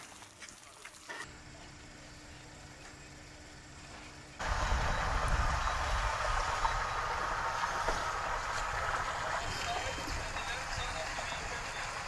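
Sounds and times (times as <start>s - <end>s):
rushing noise: 4.4s - 12.0s.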